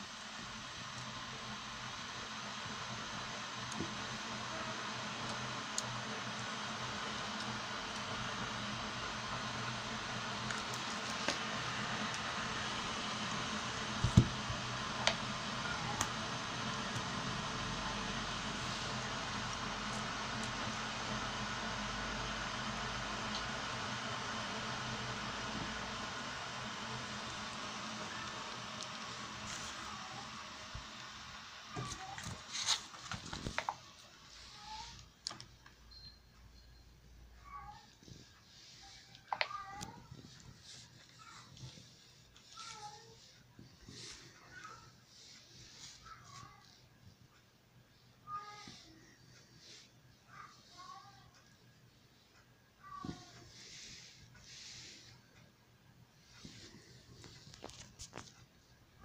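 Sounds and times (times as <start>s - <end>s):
faint high chirps: 35.8s - 37.9s
quiet rustling: 48.3s - 59.0s.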